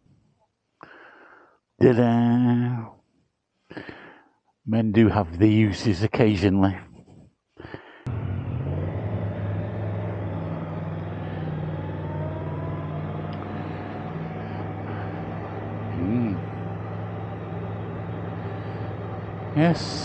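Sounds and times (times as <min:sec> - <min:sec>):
motorcycle engine running: 0:08.1 - 0:20.0
rising and falling tone: 0:08.1 - 0:20.0
rising whine: 0:08.1 - 0:20.0.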